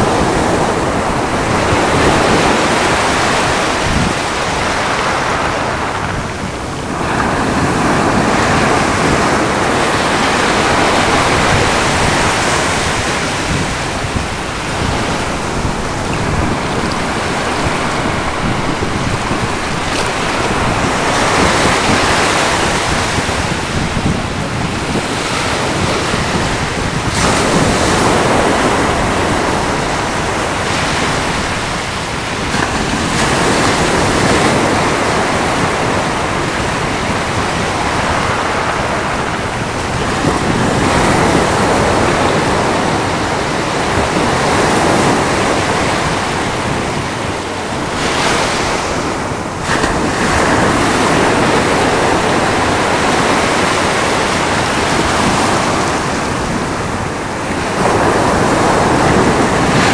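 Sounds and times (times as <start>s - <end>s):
ocean surf breaking on rocks: 0.0s - 59.9s.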